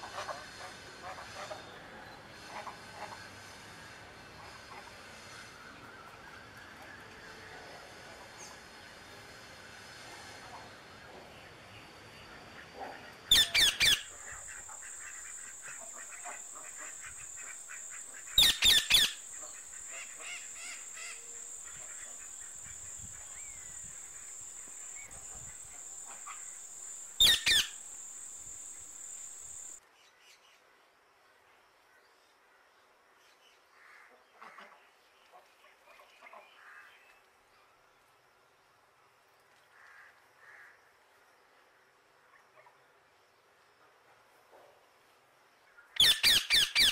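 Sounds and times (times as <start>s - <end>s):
faint bird chirps: 13.3s - 29.8s
high-pitched insect drone: 13.3s - 29.8s
parrots squawking: 13.3s - 29.8s.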